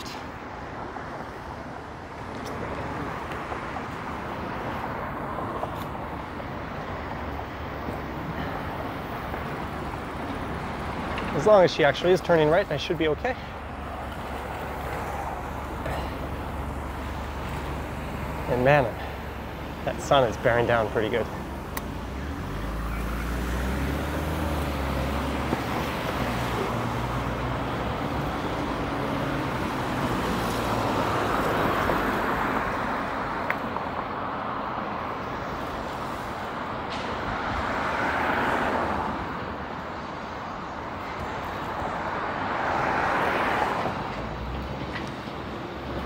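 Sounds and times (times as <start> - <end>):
vehicle engine humming: 0.0 - 33.5
cars passing: 0.0 - 46.0.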